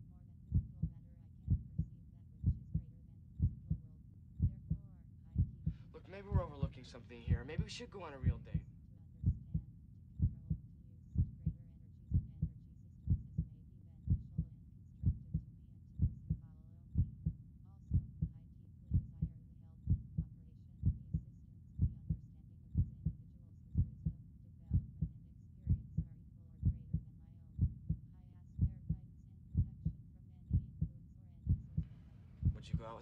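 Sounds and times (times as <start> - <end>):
heartbeat thumps: 0.5 - 3.8, 4.4 - 4.8, 5.4 - 6.7, 9.2 - 9.6, 10.2 - 10.6, 11.2 - 13.5, 14.1 - 16.4, 17.0 - 19.3, 19.9 - 21.2, 21.8 - 22.2, 22.8 - 23.2, 23.8 - 29.0, 29.6 - 33.0.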